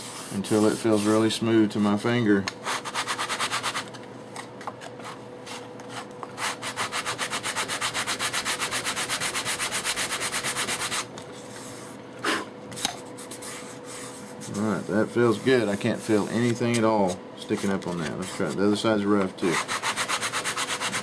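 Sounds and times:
sanding block rubbing wood: 0.0 - 1.3, 2.6 - 3.9, 6.4 - 11.1, 19.4 - 21.0.

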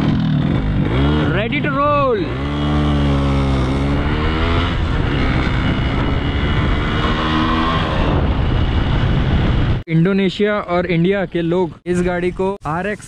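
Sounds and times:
motorcycle engine accelerating: 0.0 - 9.8.

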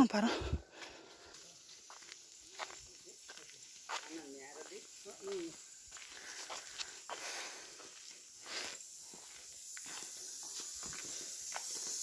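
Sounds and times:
footsteps on a path: 0.0 - 12.0
steady high hiss: 0.0 - 12.0.

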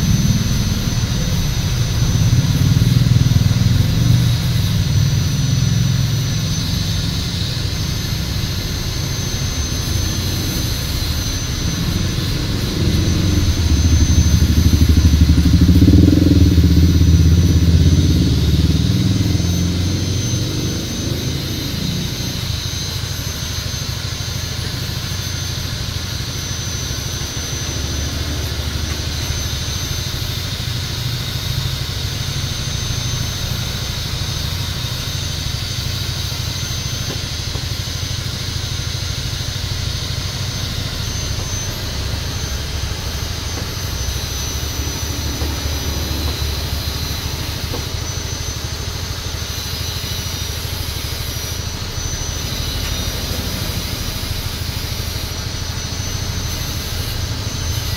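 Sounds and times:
loud low mechanical hum: 0.0 - 57.9
thin high whine: 0.0 - 57.9.

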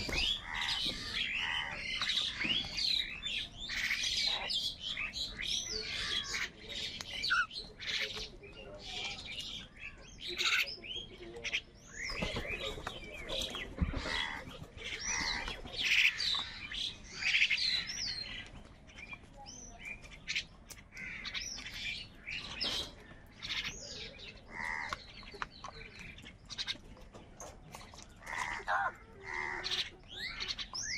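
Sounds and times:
small birds chirping and whistling: 0.0 - 30.9
crows cawing: 0.2 - 2.6, 20.9 - 21.4, 24.5 - 25.1, 28.2 - 30.6.

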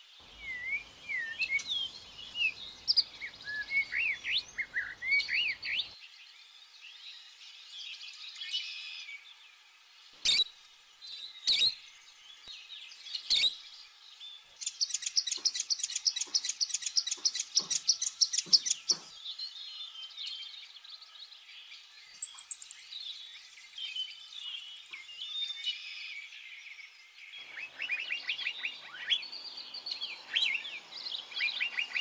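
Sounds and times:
small birds chirping: 0.0 - 32.0
high bird trill: 22.2 - 25.1.

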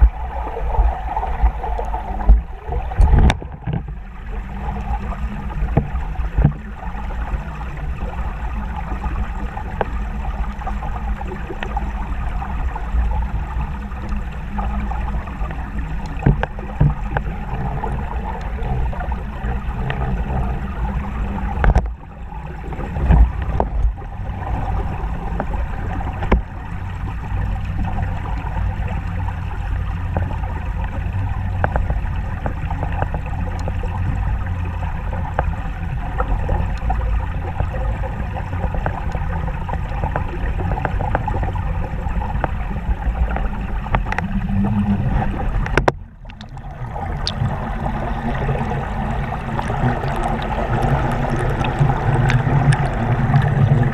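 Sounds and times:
muffled underwater river rumble: 0.0 - 53.9
knocks and clicks: 45.6 - 47.5.

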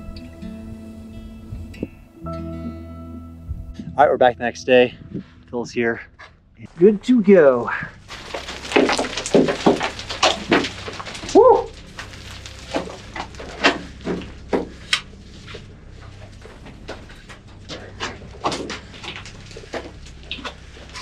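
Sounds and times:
boots and gear scraping rock: 6.7 - 21.0
person shouting: 11.3 - 11.7.

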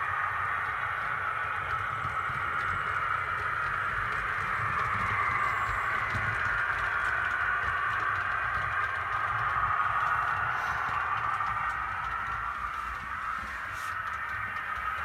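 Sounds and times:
model trains whirring on track: 0.0 - 15.0.

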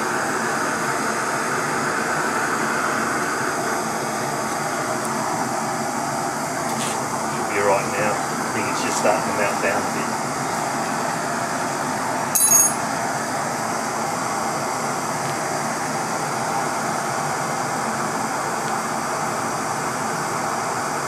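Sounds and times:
gas torches hissing: 0.2 - 12.3
metallic clink: 12.4 - 12.8.

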